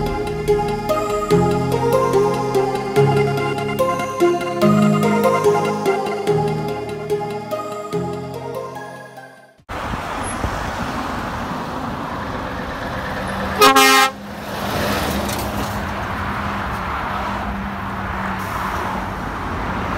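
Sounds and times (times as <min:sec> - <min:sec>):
road and traffic noise: 0:09.6 - 0:19.9
truck air horn blast: 0:13.6 - 0:14.2.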